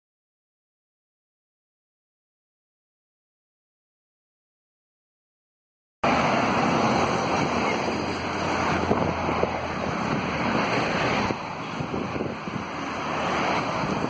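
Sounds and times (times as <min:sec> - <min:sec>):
road traffic: 0:06.0 - 0:14.0.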